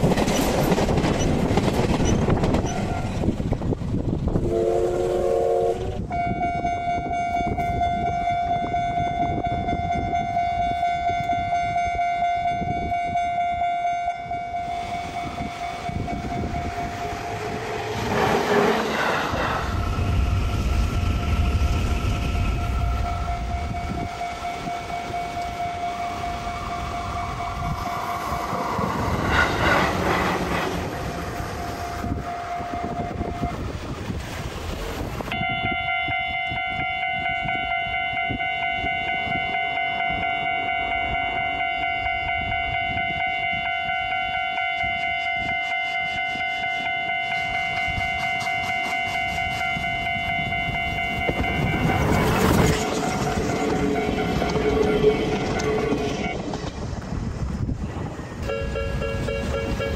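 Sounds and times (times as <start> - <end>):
train on rails: 0.0 - 59.9
level crossing warning bell: 6.1 - 18.1, 22.2 - 29.2, 31.0 - 33.6, 35.3 - 56.4, 58.4 - 59.9.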